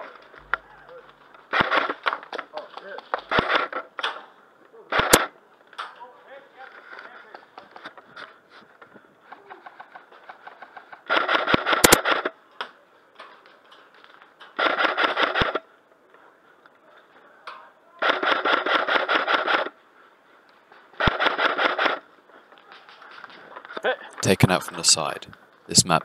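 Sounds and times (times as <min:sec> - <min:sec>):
faint scattered shots: 0:00.0 - 0:05.4, 0:09.3 - 0:12.8, 0:14.5 - 0:15.7, 0:18.0 - 0:19.8, 0:20.9 - 0:23.8
airsoft guns firing full auto: 0:01.5 - 0:02.6, 0:03.2 - 0:04.3, 0:04.9 - 0:05.4, 0:09.6 - 0:12.4, 0:14.5 - 0:15.7, 0:18.0 - 0:19.8, 0:20.9 - 0:22.1.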